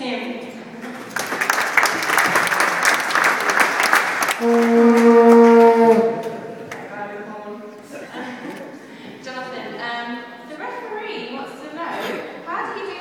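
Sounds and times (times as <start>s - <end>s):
audience applauding: 1.0s - 5.4s
steady horn note: 4.4s - 6.7s.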